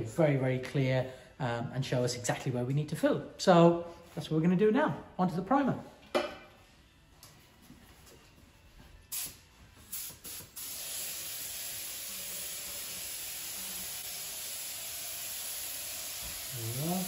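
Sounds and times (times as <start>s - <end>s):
spray gun hissing: 9.1s - 17.0s.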